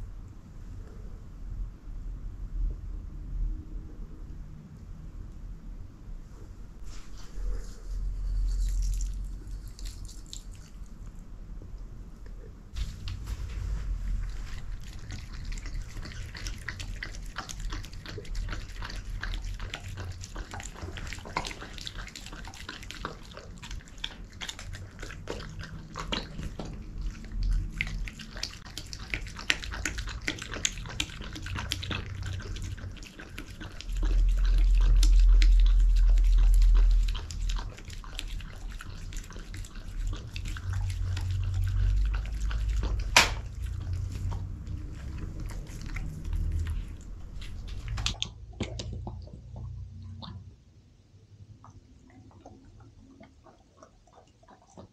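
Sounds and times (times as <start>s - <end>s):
dog chewing and licking: 7.4s - 11.7s, 12.3s - 50.6s, 51.6s - 54.9s
clicks and smacks: 43.1s - 43.6s, 47.4s - 50.4s.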